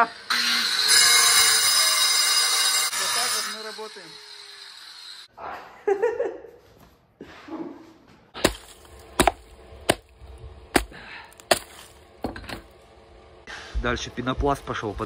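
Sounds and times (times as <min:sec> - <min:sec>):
hammer striking concrete: 0:08.4 - 0:10.1, 0:10.7 - 0:12.7.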